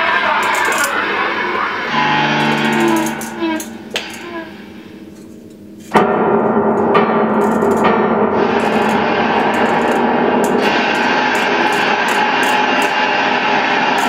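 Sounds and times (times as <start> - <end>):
electric guitar through effects: 0.0 - 14.0
gong-like strike: 1.8 - 14.0
clarinet: 1.9 - 4.6.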